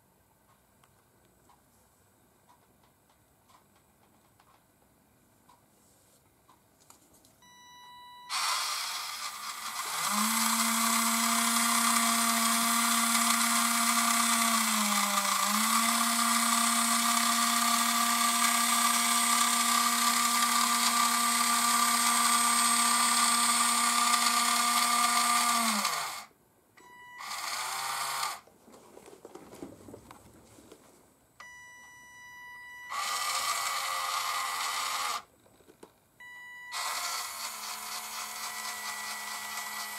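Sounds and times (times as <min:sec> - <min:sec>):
small electric motor whining: 0:08.3 - 0:26.3, 0:27.2 - 0:28.4, 0:32.9 - 0:35.3, 0:36.7 - 0:39.9.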